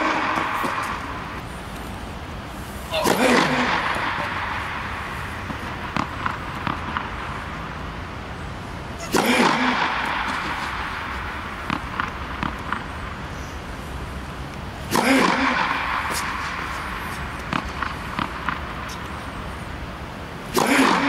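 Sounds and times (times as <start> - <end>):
racket hitting tennis ball: 0.0 - 1.4, 2.8 - 7.7, 9.0 - 12.9, 14.8 - 19.1, 20.4 - 21.0
tennis ball bouncing on hard court: 0.0 - 1.4, 3.0 - 7.8, 9.0 - 12.9, 14.9 - 19.1
steady hiss: 0.0 - 21.0.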